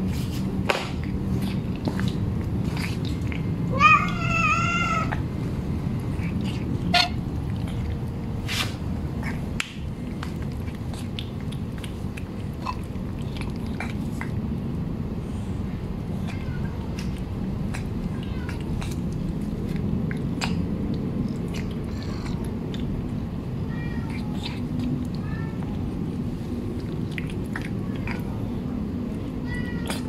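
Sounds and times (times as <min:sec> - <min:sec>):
cats licking and chewing: 0:00.0 - 0:30.0
low background hum: 0:00.0 - 0:30.0
cat meowing: 0:03.7 - 0:05.3, 0:16.2 - 0:17.2, 0:18.0 - 0:19.0, 0:23.6 - 0:25.9, 0:29.2 - 0:30.0.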